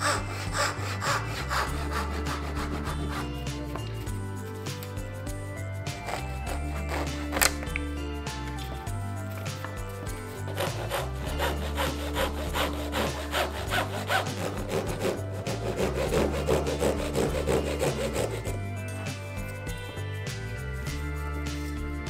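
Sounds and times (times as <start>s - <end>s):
handsaw cutting plywood: 0.0s - 4.1s, 6.0s - 7.8s, 10.3s - 18.6s.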